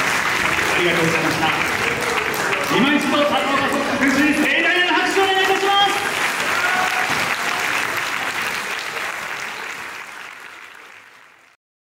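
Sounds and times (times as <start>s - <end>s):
audience applause: 0.0s - 11.6s.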